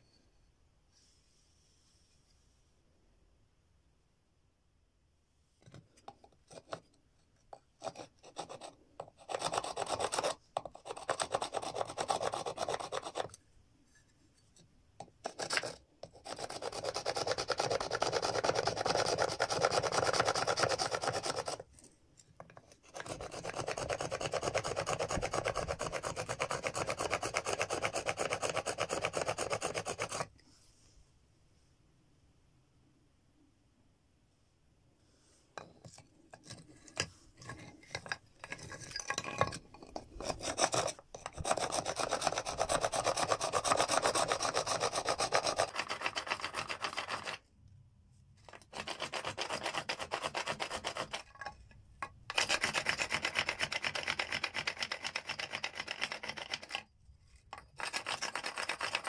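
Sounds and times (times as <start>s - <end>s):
stone rasping against bone: 7.8s - 13.4s, 15.2s - 21.6s, 22.5s - 30.3s, 35.6s - 47.4s, 48.4s - 51.6s.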